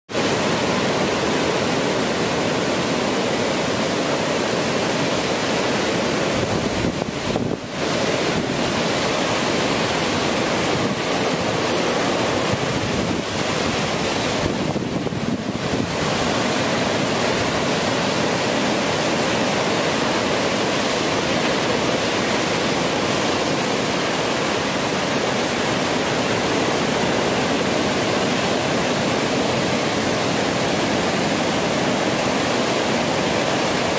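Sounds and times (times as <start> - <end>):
ocean surf breaking: 0.1 - 33.9
wind on microphone: 5.9 - 33.9.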